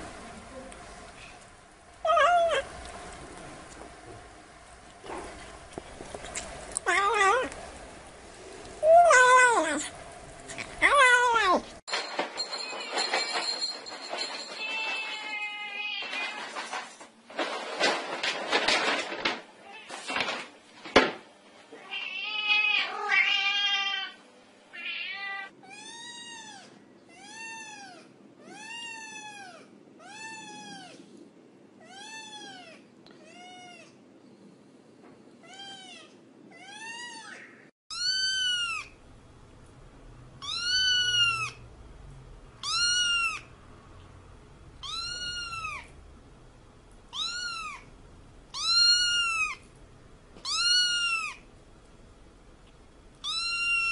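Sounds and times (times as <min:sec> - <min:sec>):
cat meowing: 0:21.8 - 0:31.0, 0:35.4 - 0:39.0, 0:40.4 - 0:41.6, 0:42.6 - 0:43.5, 0:44.8 - 0:45.9, 0:47.1 - 0:47.9, 0:48.5 - 0:49.6, 0:50.4 - 0:51.4, 0:53.2 - 0:53.9.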